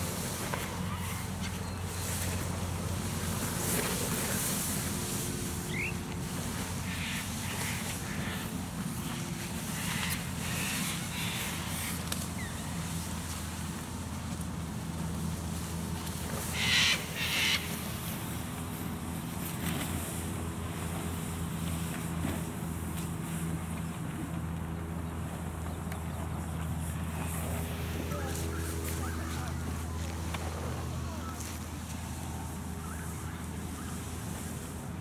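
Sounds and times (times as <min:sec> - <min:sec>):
low engine hum: 0:00.0 - 0:35.0
harsh bird calls: 0:05.7 - 0:06.0, 0:16.4 - 0:17.8.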